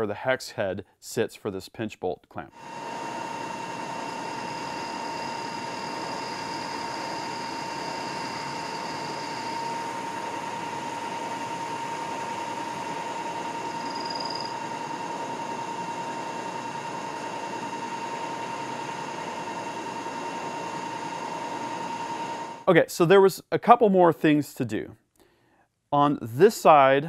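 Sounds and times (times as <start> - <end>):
milling machine whining: 2.6 - 22.6.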